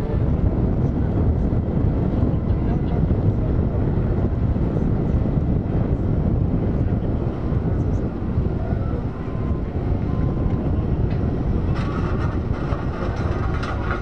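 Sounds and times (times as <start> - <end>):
heavy machinery rumbling: 0.0 - 14.0.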